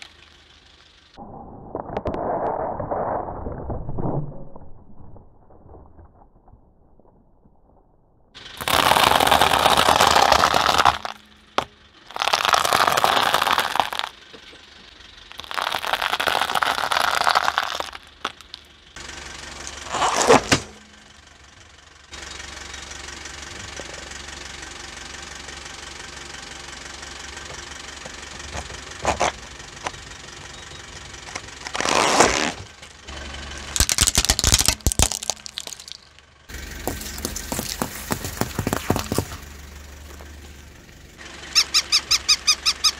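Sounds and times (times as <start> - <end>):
car engine running: 0.0 - 1.8, 8.3 - 42.9
tyre crushing things: 8.6 - 14.1, 15.4 - 18.6, 33.8 - 39.4.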